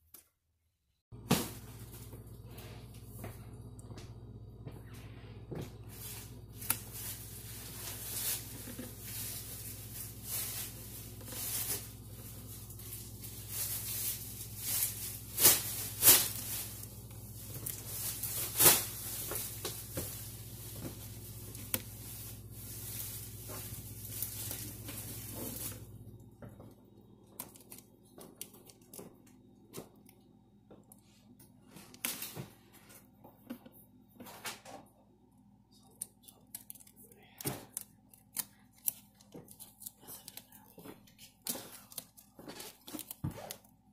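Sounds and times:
steady low hum: 1.1s - 43.9s
contact paper crinkling: 5.8s - 30.2s, 35.7s - 43.9s.

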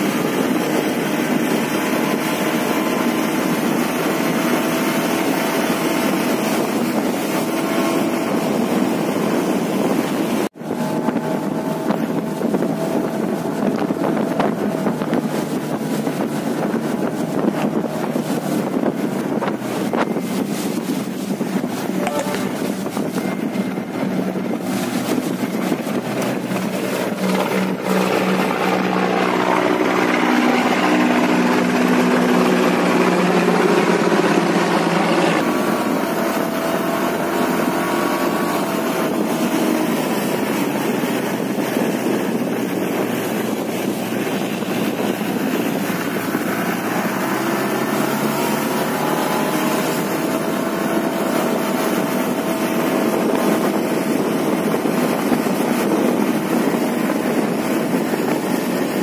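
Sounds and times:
motorboat engine running: 0.0s - 59.0s
water noise: 0.0s - 59.0s
wind: 0.0s - 59.0s.

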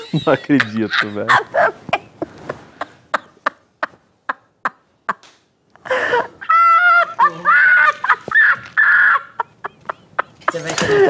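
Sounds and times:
high-pitched cackling laughter: 6.5s - 11.0s.

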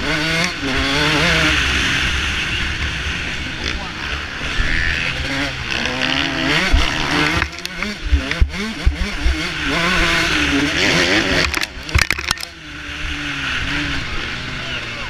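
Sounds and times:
motocross bike engine revving: 0.0s - 15.0s
low thumps: 6.0s - 10.3s.

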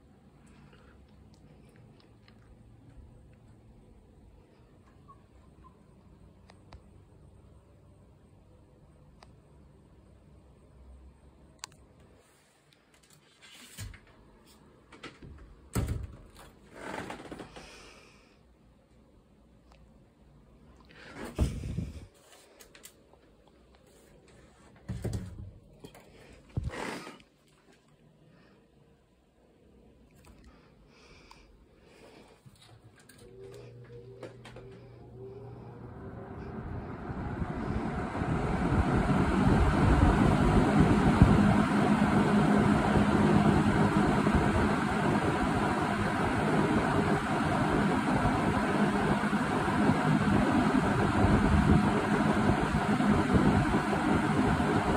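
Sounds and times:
box fan air rushing: 21.0s - 22.5s, 35.8s - 54.9s.

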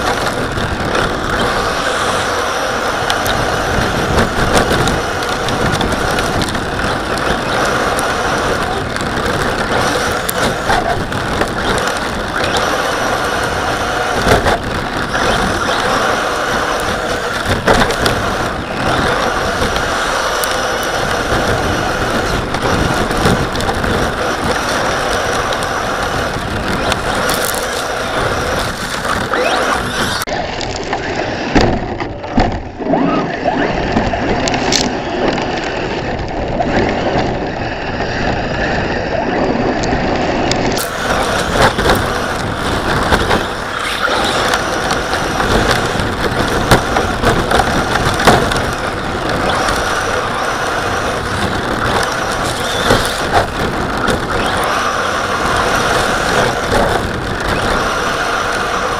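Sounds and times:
rc car gear noise: 0.0s - 58.9s
tyres rumbling on snow: 0.0s - 58.9s
knocks and jolts from bumps: 40.7s - 54.9s.

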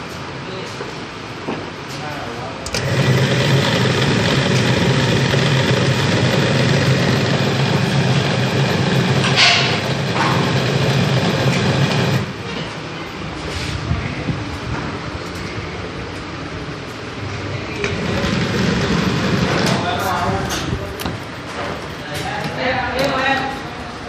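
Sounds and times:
coil winding machine humming: 2.6s - 12.5s, 17.8s - 20.2s
mechanical rattle: 2.7s - 12.4s.

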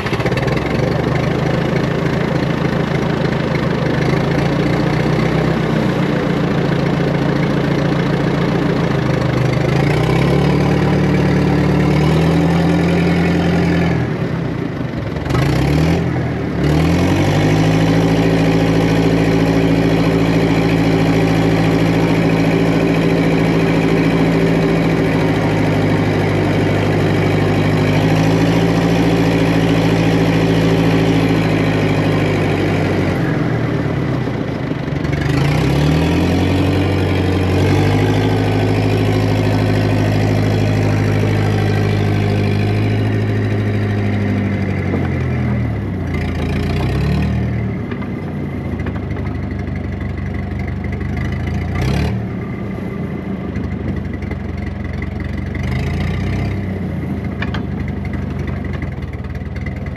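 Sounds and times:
heavy diesel engine revving: 0.0s - 59.9s.

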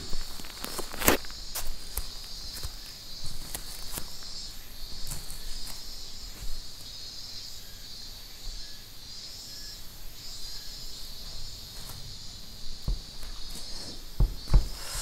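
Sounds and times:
insects chirping: 0.0s - 15.0s
soft knocks: 11.2s - 14.8s.

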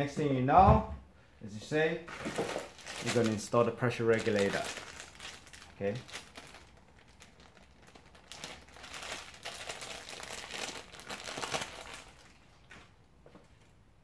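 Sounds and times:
plastic bag crinkling: 2.1s - 12.8s.

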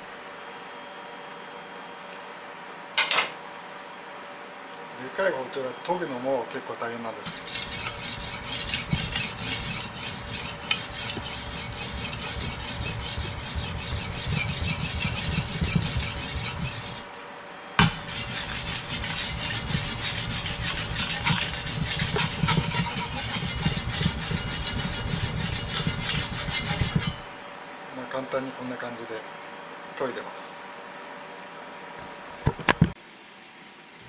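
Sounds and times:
knife grinding on whetstone: 7.2s - 17.1s, 17.8s - 27.3s.

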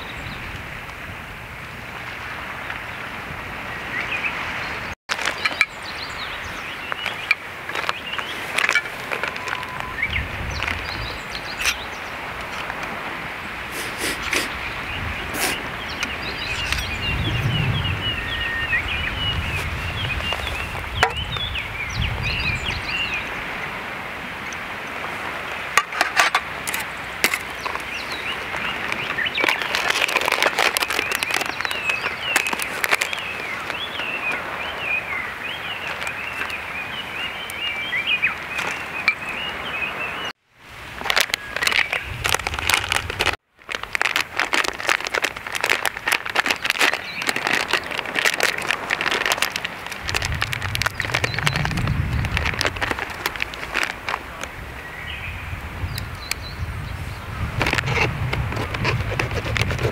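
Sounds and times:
steady outdoor rush: 0.0s - 59.9s
small birds chirping: 2.7s - 12.7s, 13.4s - 23.7s, 26.7s - 40.3s, 44.6s - 58.1s
handling clicks and crackles: 5.1s - 5.8s, 6.9s - 11.8s, 25.8s - 34.4s, 35.8s - 36.6s, 41.0s - 54.6s, 57.6s - 59.9s.

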